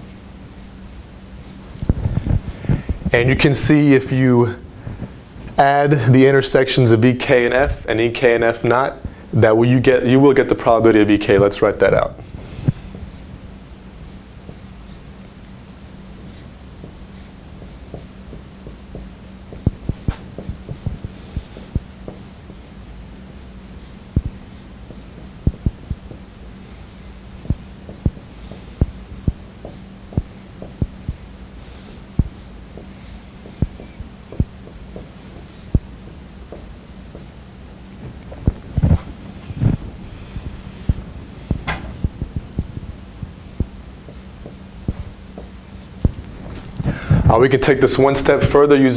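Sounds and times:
steady low hum: 0:00.0 - 0:48.9
marker squeaking on whiteboard: 0:14.1 - 0:15.0, 0:15.8 - 0:37.4, 0:43.5 - 0:46.0
marker tip tapping board: 0:16.8 - 0:22.6, 0:27.4 - 0:31.2, 0:32.1 - 0:37.3.

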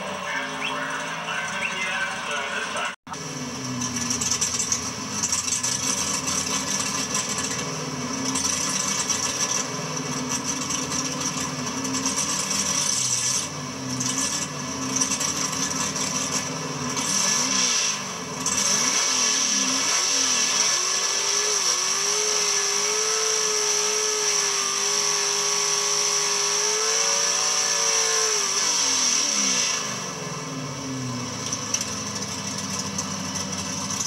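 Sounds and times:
steady whine: 0:00.0 - 0:06.1
race car engine revving: 0:00.0 - 0:34.0.

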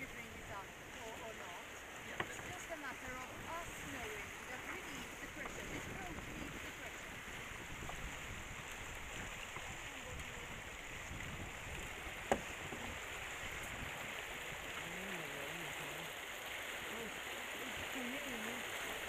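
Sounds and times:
water splashing along hull: 0:00.0 - 0:19.0
wind: 0:00.0 - 0:19.0.

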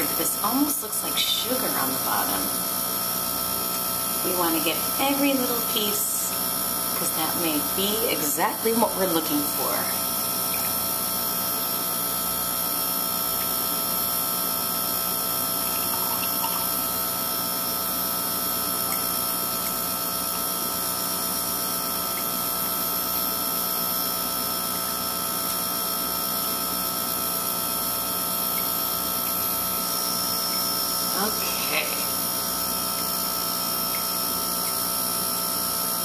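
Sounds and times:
magnetic separator electrical buzz: 0:00.0 - 0:36.0.

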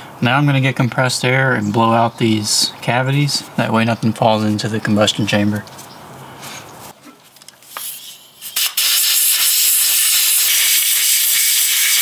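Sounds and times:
short air puffs: 0:07.6 - 0:11.8
compressed air blow gun hissing: 0:07.7 - 0:12.0.

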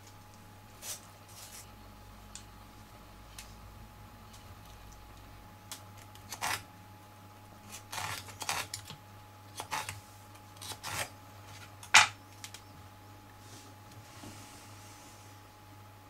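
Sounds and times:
knife cutting watermelon rind: 0:06.0 - 0:06.7, 0:07.6 - 0:12.1.

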